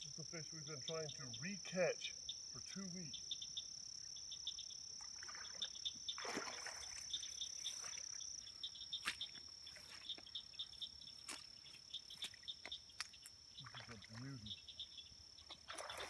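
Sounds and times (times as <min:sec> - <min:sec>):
frogs and insects calling: 0:00.0 - 0:16.0
water splash: 0:05.2 - 0:07.1, 0:15.6 - 0:16.0.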